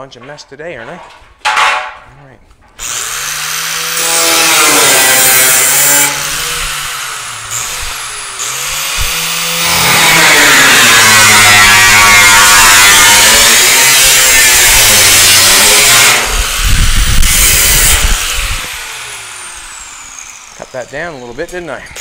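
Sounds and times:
angle grinder cutting metal: 2.8s - 22.0s.

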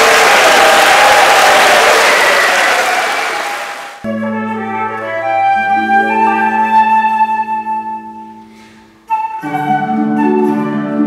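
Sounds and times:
flute melody: 4.0s - 11.0s.

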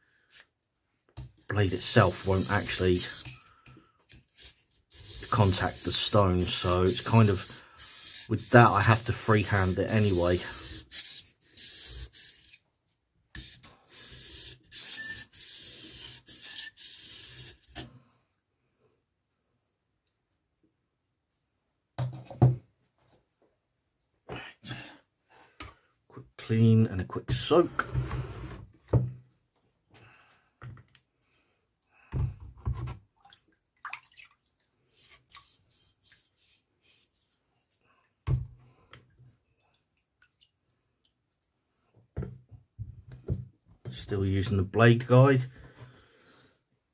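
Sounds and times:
water splashing in a bowl: 33.2s - 34.7s, 39.6s - 41.2s.

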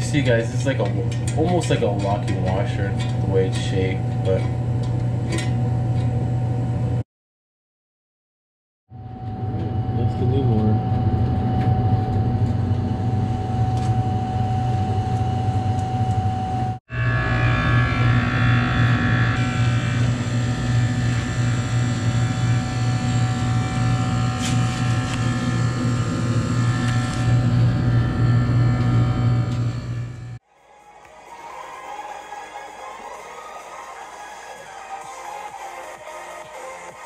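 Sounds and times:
fan motor whine: 0.0s - 7.0s, 8.9s - 30.4s
refrigeration machine hum: 0.0s - 7.0s, 8.9s - 37.0s.

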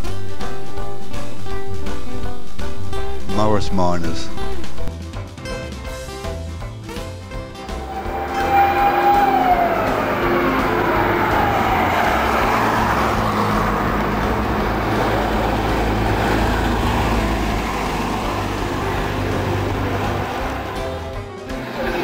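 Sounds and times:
fire engine engine running: 7.5s - 22.0s
siren winding down: 7.6s - 21.0s.

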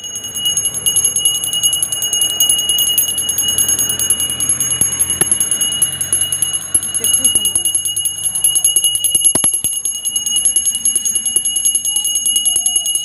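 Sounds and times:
hand bell ringing rapidly: 0.0s - 13.0s.

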